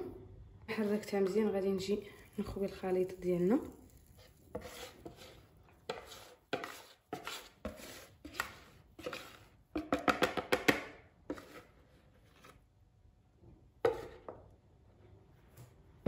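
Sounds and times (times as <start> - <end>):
whisk scraping plastic bowl: 4.2 - 10.0, 11.3 - 11.8.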